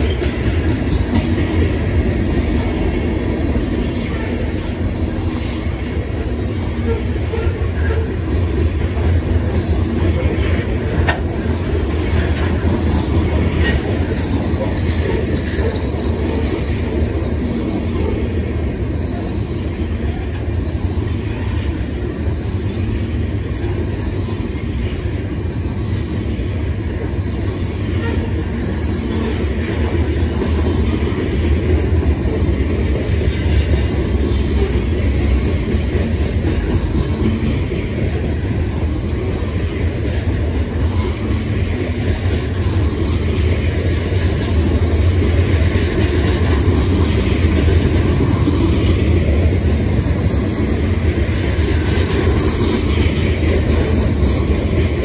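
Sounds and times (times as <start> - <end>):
train clanks: 0.0 - 55.0
train wheels rumbling on rail: 0.0 - 55.0.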